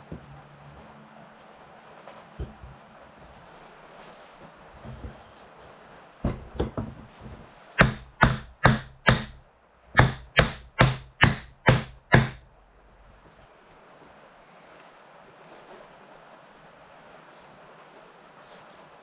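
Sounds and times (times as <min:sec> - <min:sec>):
wooden block knocking on timber: 0:07.8 - 0:09.4, 0:10.0 - 0:12.4.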